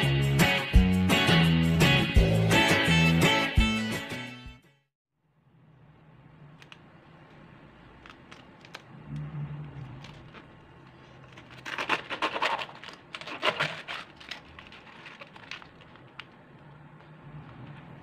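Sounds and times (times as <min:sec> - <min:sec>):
knife slicing cabbage: 0:11.2 - 0:14.5.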